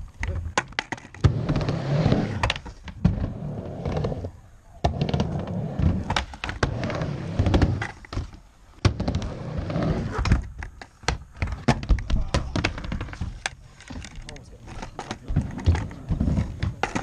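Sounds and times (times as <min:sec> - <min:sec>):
skateboard wheels rolling on ramp: 0:00.0 - 0:17.0
skateboard clacking on ramp: 0:10.2 - 0:17.0.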